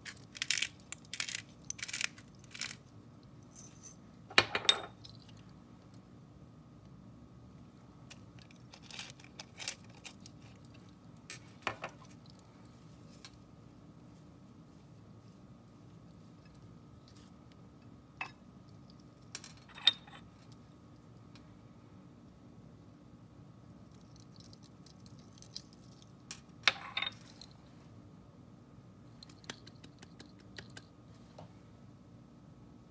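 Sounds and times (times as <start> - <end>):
salt grinder grinding: 0.0 - 2.8.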